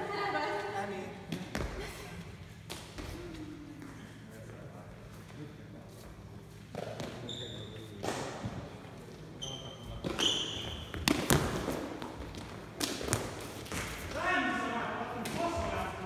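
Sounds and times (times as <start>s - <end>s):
sneakers squeaking on floor: 6.8s - 8.2s, 9.3s - 12.5s.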